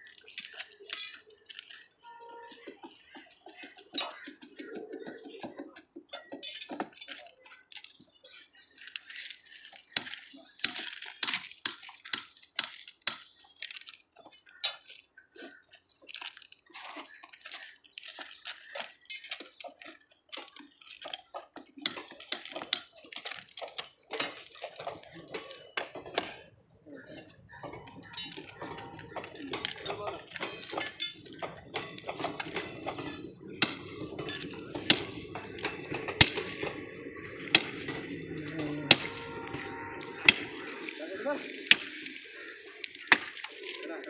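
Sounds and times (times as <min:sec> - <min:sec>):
hand tools clinking on steel rail: 0:00.1 - 0:04.6, 0:18.8 - 0:26.5, 0:27.1 - 0:44.0.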